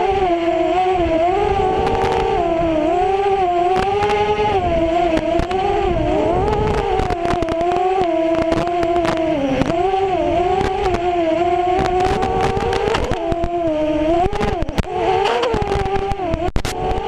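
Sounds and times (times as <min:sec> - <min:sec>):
quadcopter motors whining: 0:00.0 - 0:17.0
crackling clicks: 0:01.8 - 0:02.4, 0:03.7 - 0:04.4, 0:05.0 - 0:05.7, 0:06.4 - 0:09.9, 0:10.5 - 0:17.0.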